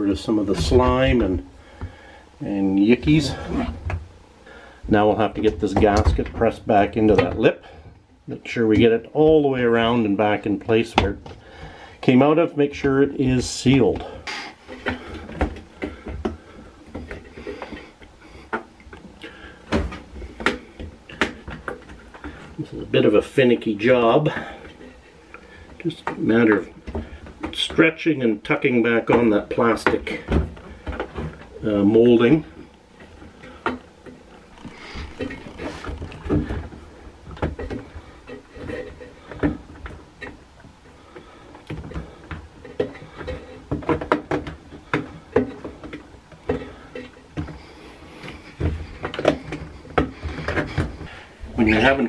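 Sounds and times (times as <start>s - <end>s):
soft knocks and thumps: 0.1s - 2.1s, 4.8s - 8.0s, 12.8s - 22.9s, 28.9s - 52.0s
rubber rubbing: 3.0s - 3.9s, 34.2s - 39.7s.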